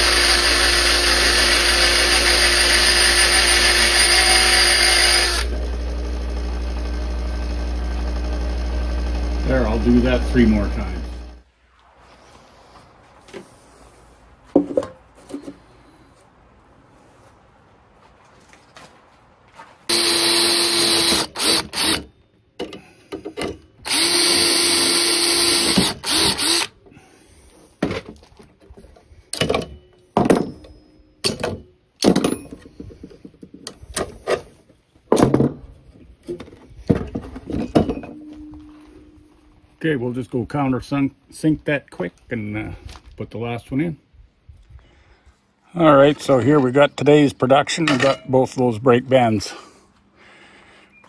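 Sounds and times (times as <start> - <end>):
cordless drill boring through steel: 0.0 - 11.4, 19.9 - 22.1, 23.8 - 26.8.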